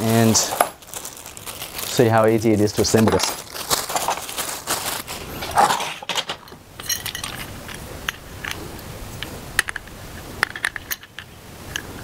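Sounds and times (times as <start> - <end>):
light metallic clinks: 6.8 - 8.6.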